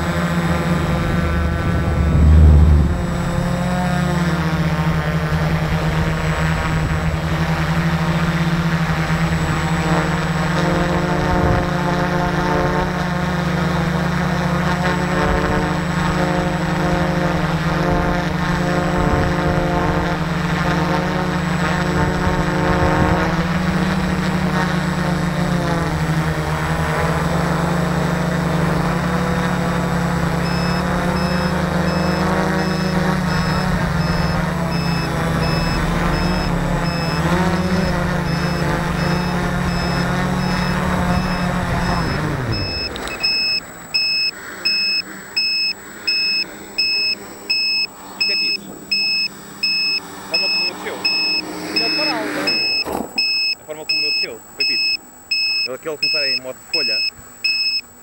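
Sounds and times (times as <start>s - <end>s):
drone propellers droning: 0.0s - 58.0s
high beeps: 30.4s - 57.8s.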